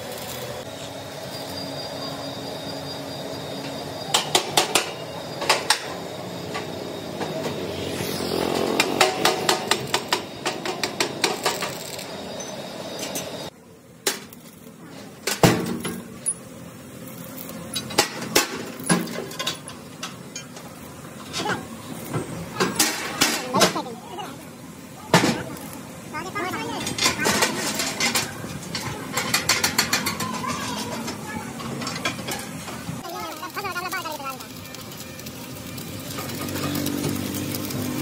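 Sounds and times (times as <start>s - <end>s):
steady machine hum: 0.0s - 14.0s.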